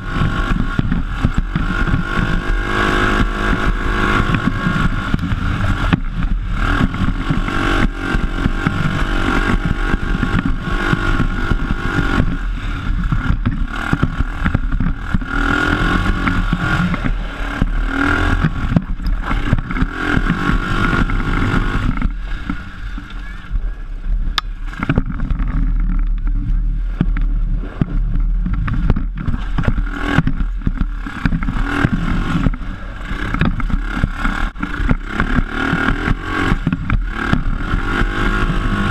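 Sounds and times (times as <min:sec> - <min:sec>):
buggy engine running: 0:00.0 - 0:38.9
chassis rattling over bumps: 0:00.0 - 0:38.9.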